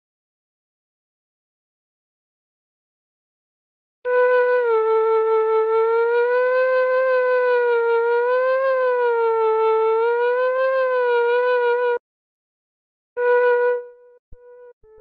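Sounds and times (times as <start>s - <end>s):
held keyboard note wavering: 13.2s - 15.0s.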